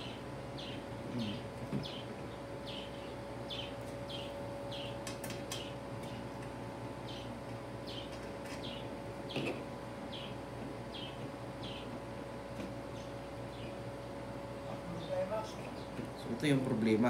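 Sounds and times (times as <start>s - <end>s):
bird chirping: 0.0s - 6.2s, 7.0s - 9.4s, 10.1s - 11.9s, 12.9s - 13.8s
steady electrical hum: 0.0s - 17.0s.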